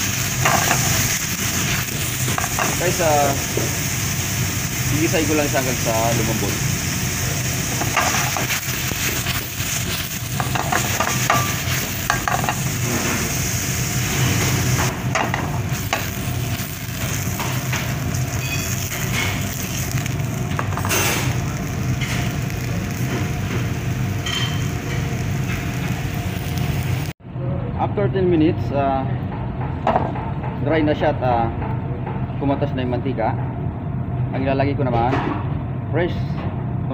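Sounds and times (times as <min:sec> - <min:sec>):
meat sizzling in hot oil: 0:00.0 - 0:27.2.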